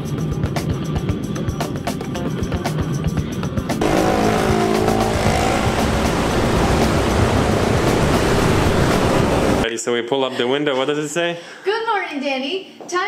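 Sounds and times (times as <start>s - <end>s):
background music: 1.1s - 9.6s
car driving close by: 3.8s - 9.6s.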